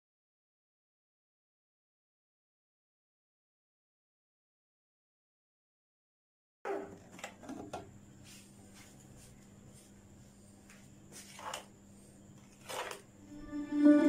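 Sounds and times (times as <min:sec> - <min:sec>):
faint steady hum: 0:06.7 - 0:14.0
spatula scraping plastic bowl: 0:11.2 - 0:11.7, 0:12.4 - 0:13.1.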